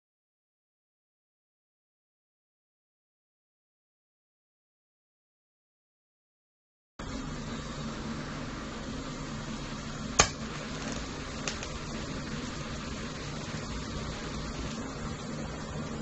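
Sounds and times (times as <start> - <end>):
low electrical hum: 7.0 - 16.0
welding arc hiss: 7.0 - 16.0.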